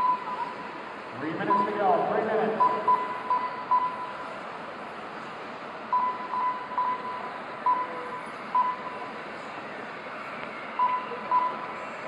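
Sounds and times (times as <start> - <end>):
short electronic beeps: 0.0 - 0.5, 1.5 - 1.8, 2.6 - 4.2, 5.9 - 9.0, 10.8 - 11.7.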